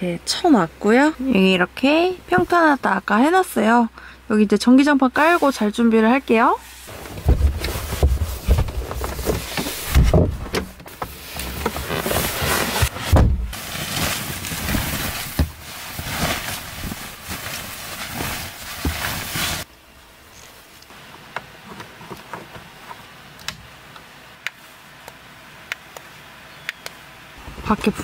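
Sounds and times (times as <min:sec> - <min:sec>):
quilted fabric rustling: 0:11.1 - 0:19.7.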